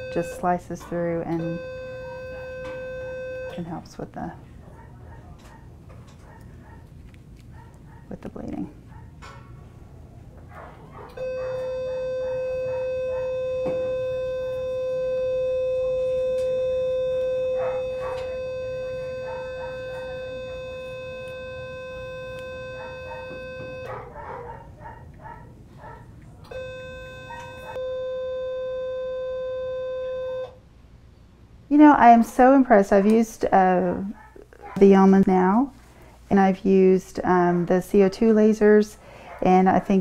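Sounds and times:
electronic activation tone: 1.3s - 3.7s.

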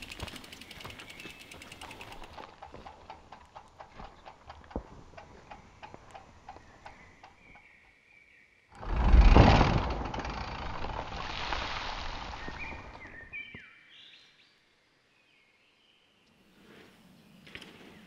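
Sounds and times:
bike freehub clicking: 0.0s - 7.7s.

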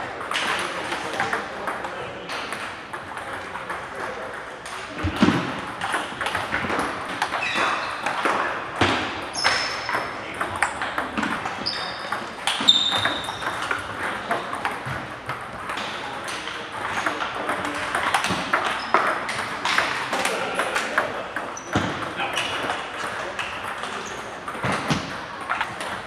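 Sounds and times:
table tennis balls clicking: 0.0s - 26.0s
shoes squeaking on wooden floor: 7.4s - 8.0s, 11.6s - 13.5s.

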